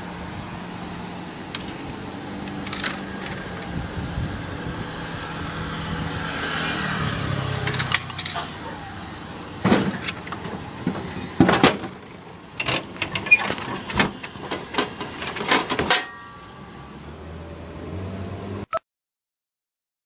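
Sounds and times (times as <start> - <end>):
glassy ring: 16.0 - 17.0.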